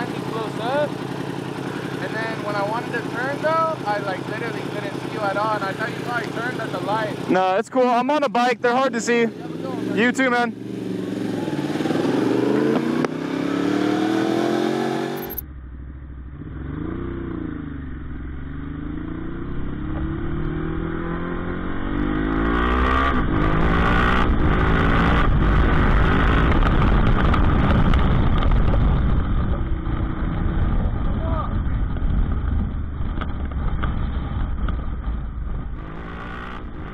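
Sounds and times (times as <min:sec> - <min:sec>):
motorcycle engine revving: 0:00.0 - 0:36.9
rushing wind noise: 0:20.2 - 0:36.9.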